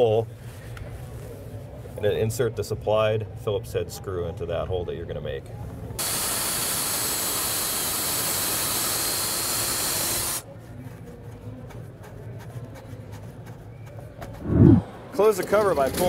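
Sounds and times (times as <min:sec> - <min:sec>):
cordless drill running: 0:06.0 - 0:10.4.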